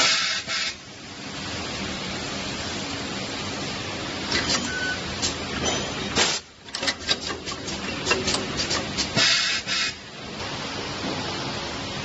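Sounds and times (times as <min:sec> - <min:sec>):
machine clicks and knocks: 0:04.3 - 0:09.2.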